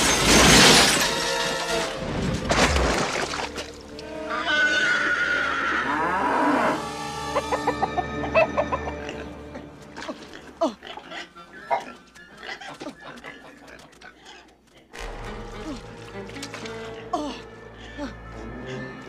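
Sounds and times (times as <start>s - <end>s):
crash: 0.0s - 3.5s
background music: 0.8s - 12.1s, 14.9s - 19.0s
cow mooing: 4.3s - 6.9s.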